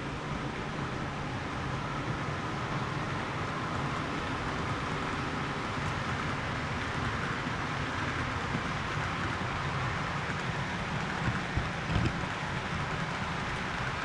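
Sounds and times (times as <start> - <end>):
model train wheels rattling: 3.1 - 14.0.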